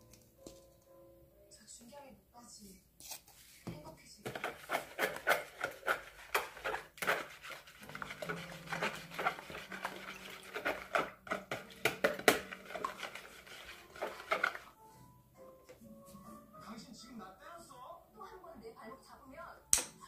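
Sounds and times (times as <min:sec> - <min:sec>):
wire whisk beating in plastic bowl: 0:04.3 - 0:14.7.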